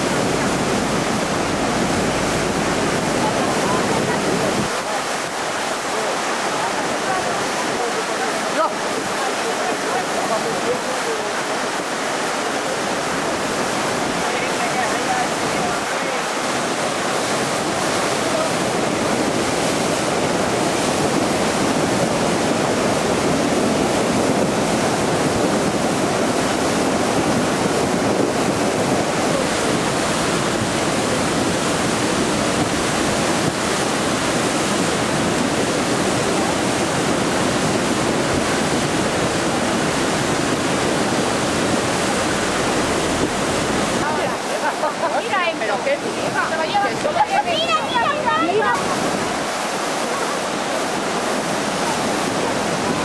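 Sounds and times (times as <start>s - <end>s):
floodwater rushing and churning: 0.0s - 53.0s.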